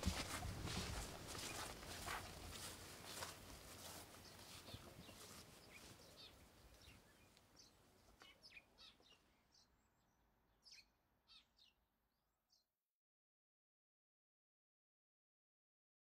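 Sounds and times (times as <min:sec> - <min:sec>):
faint birdsong chirps: 0:00.0 - 0:12.7.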